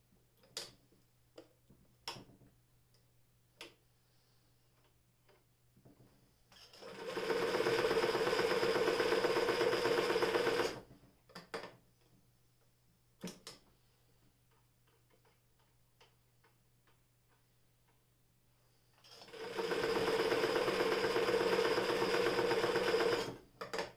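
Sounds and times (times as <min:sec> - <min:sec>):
electric sewing machine stitching: 0:06.7 - 0:10.8, 0:19.1 - 0:23.4.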